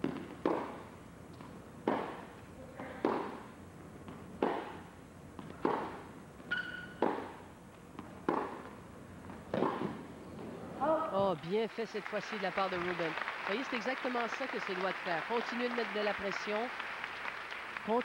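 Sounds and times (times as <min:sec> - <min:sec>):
tennis racket hitting ball: 0:00.0 - 0:02.3, 0:02.9 - 0:10.1
tennis ball bouncing: 0:00.0 - 0:10.1
shoe squeak on court: 0:06.5 - 0:07.4.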